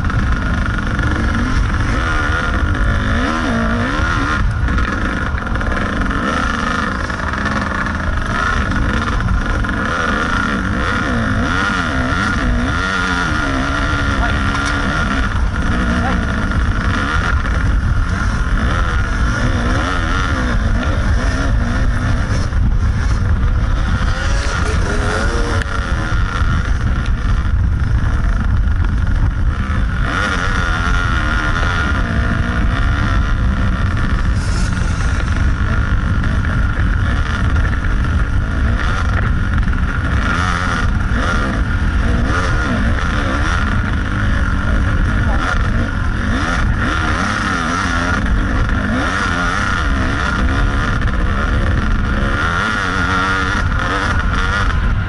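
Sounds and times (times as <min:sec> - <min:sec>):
dirt bike engine revving: 0:00.0 - 0:55.0
wind noise on microphone: 0:00.0 - 0:55.0.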